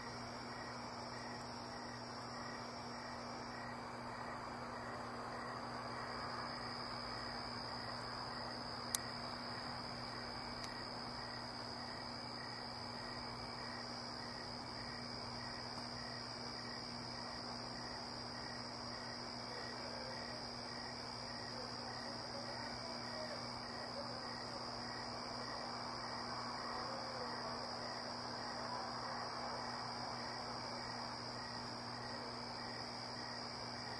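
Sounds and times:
crickets trilling: 0.0s - 33.9s.

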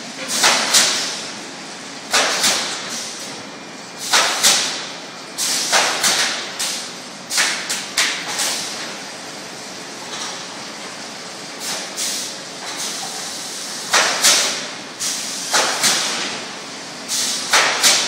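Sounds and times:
pneumatic nailer shots with air hiss: 0.3s - 1.2s, 2.1s - 3.3s, 4.0s - 8.9s, 11.6s - 16.4s, 17.1s - 18.0s.

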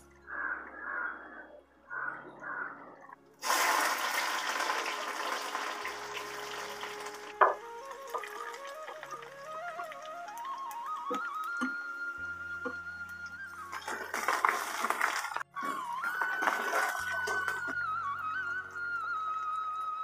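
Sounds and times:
hot oil sizzling with spices: 3.4s - 11.5s.

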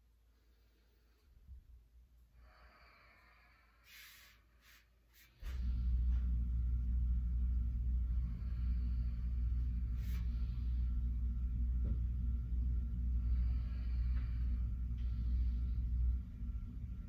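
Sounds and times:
soft breathing: 0.1s - 17.0s
loud low rumble: 5.4s - 17.0s.

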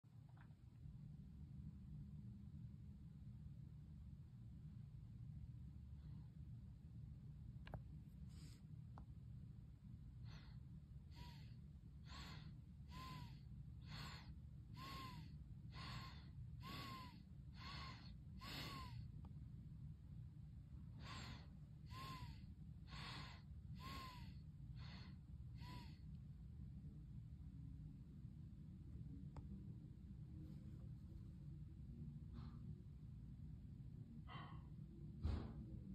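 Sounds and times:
person's rhythmic breathy gasps: 10.2s - 19.1s, 20.9s - 26.1s, 34.2s - 35.5s.

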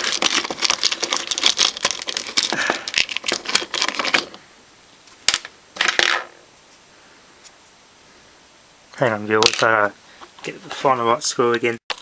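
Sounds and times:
small metal parts rattling: 0.0s - 4.4s.

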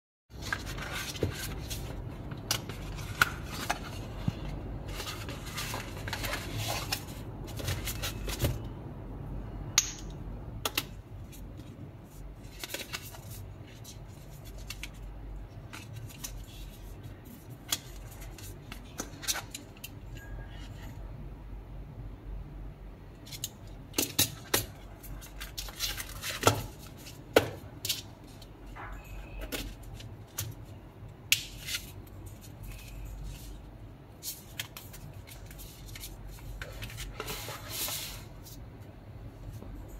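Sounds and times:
cards clicking and rustling: 12.4s - 20.0s, 34.2s - 37.4s.

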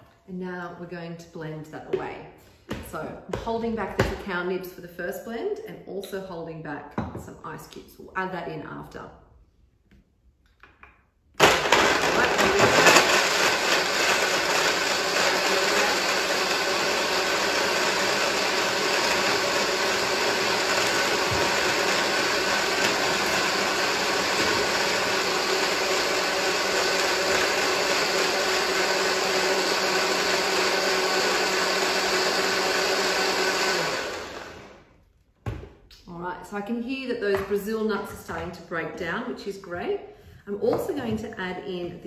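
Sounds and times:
blender running at high speed: 11.4s - 34.8s.

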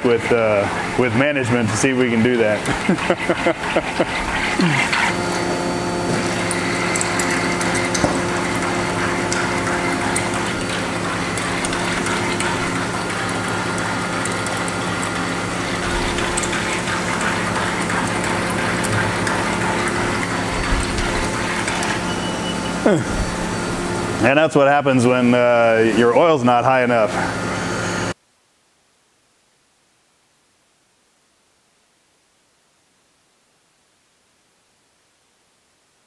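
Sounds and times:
machine humming: 0.0s - 28.2s.

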